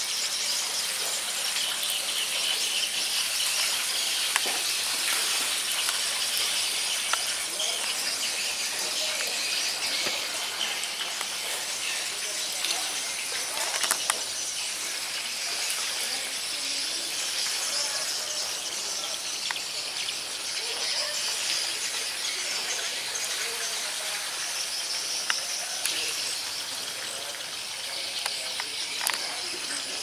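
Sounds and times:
high-pitched insect chorus: 0.0 - 30.0.

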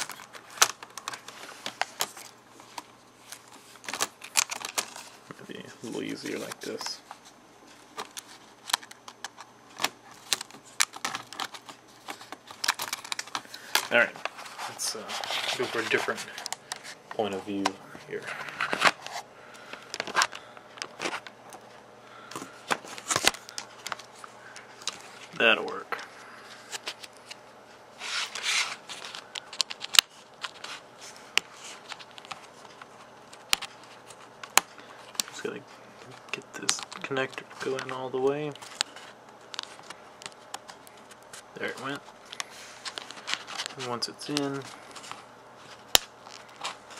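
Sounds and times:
cable rustling: 0.0 - 46.9.

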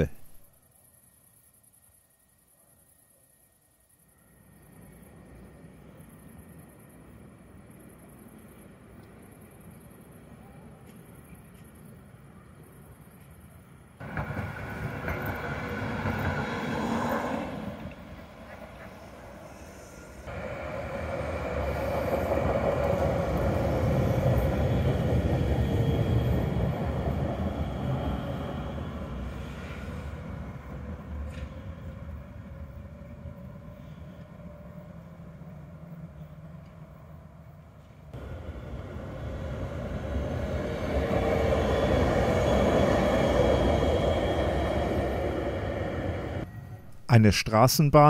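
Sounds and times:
tram wheels rumbling on rails: 12.9 - 46.8.

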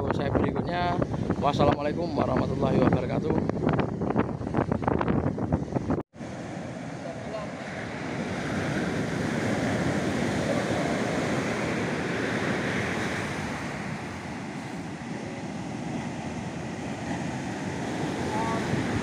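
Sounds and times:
ocean surf washing on beach: 5.6 - 19.0.

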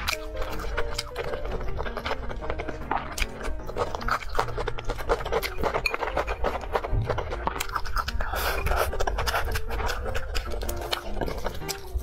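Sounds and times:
person chewing food: 0.0 - 12.0.

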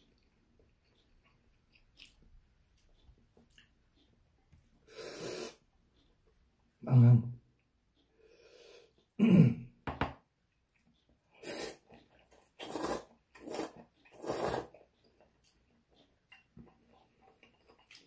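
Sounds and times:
person slurping noodles: 4.9 - 5.6, 11.4 - 12.0, 12.6 - 14.8
throat clearing: 9.2 - 9.8.

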